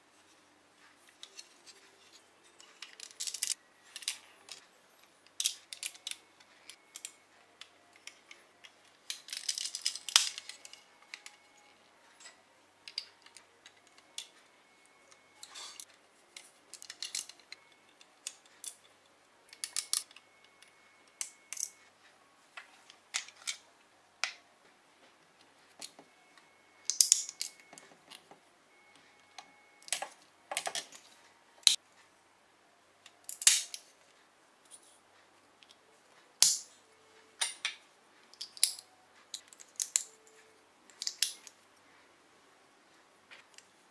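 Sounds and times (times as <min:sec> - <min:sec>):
plastic parts clicking and rattling: 0:01.0 - 0:14.4, 0:15.1 - 0:21.8, 0:22.8 - 0:23.6, 0:26.8 - 0:28.4, 0:29.4 - 0:31.8, 0:37.4 - 0:41.6.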